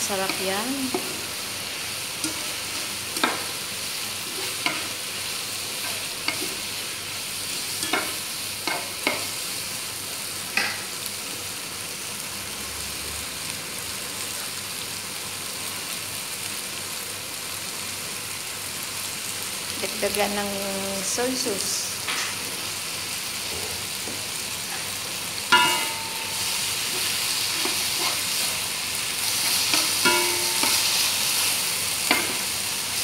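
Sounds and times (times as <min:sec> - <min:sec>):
chicken sizzling in frying pan: 0:00.0 - 0:33.0
spatula scraping pan: 0:25.5 - 0:32.4.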